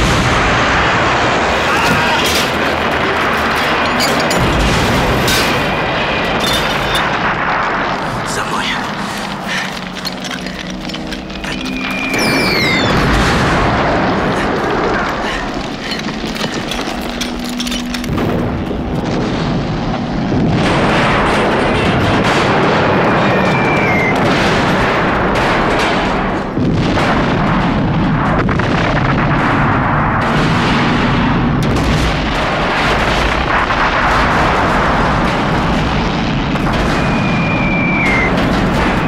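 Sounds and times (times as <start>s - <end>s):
explosions: 0.0s - 39.0s
gunfire: 0.0s - 39.0s.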